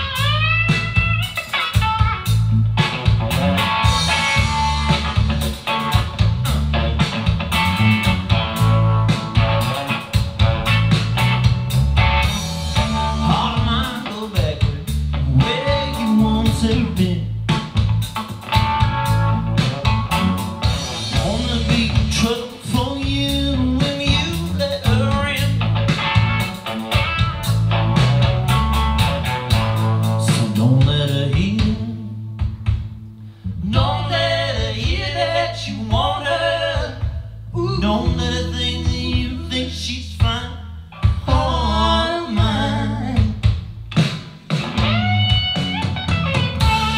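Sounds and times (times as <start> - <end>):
blues rock song from tv speakers: 0.0 - 46.9
guitar: 0.0 - 46.9
steady bass line: 0.0 - 46.9
man singing: 12.8 - 17.5, 21.0 - 25.7, 30.2 - 32.3, 33.5 - 43.5.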